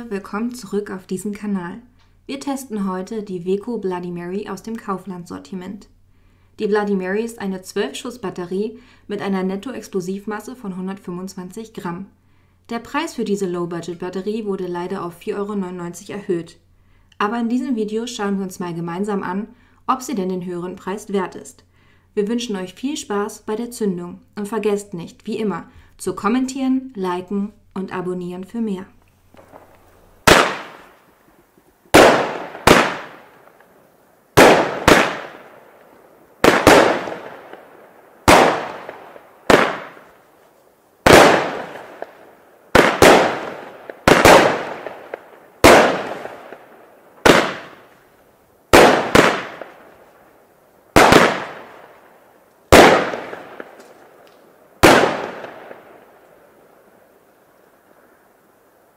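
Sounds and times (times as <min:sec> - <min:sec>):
firework bangs: 0:29.3 - 0:31.2, 0:31.9 - 0:33.7, 0:34.4 - 0:40.3, 0:41.0 - 0:48.0, 0:48.7 - 0:50.1, 0:50.9 - 0:52.1, 0:52.7 - 0:54.2, 0:54.8 - 0:56.2.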